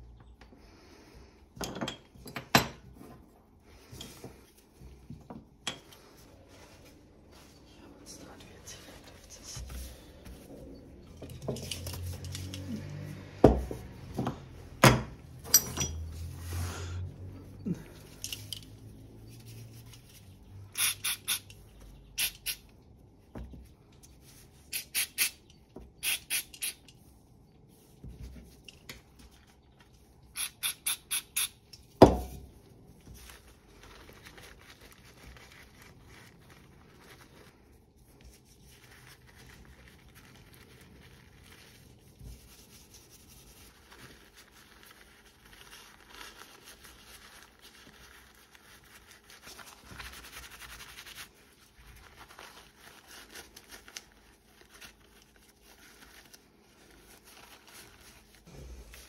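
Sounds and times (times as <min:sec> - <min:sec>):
paper towel rustling: 0:06.0 - 0:15.4, 0:22.7 - 0:24.7, 0:27.0 - 0:30.3, 0:32.5 - 0:59.0.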